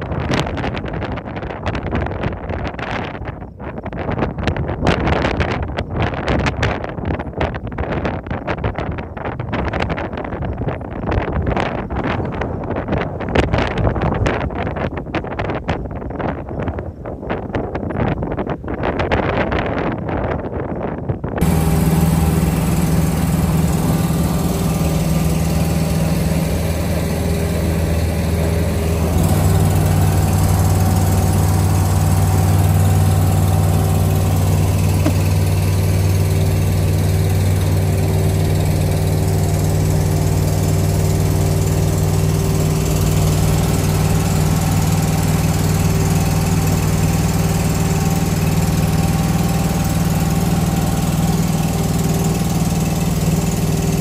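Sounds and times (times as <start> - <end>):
ferry engine running: 21.4 - 54.0.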